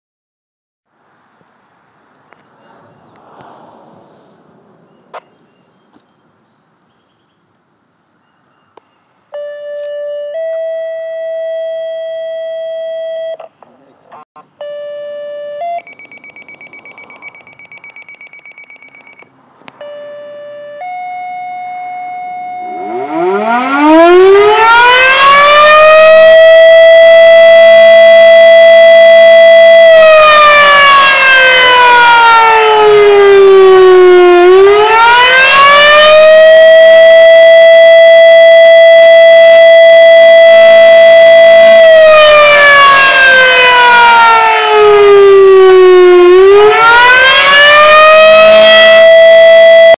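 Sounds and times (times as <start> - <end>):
fire siren wailing: 9.4 - 13.4, 19.8 - 49.9
steady electronic tones: 14.6 - 30.1, 32.6 - 49.9
rapid electronic beeps: 15.7 - 19.3.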